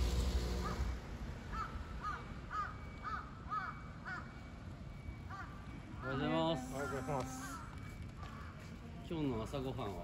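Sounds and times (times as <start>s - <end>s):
low street rumble: 0.0s - 10.0s
crow cawing: 0.5s - 0.9s, 1.5s - 4.4s, 5.3s - 5.7s, 6.6s - 8.6s.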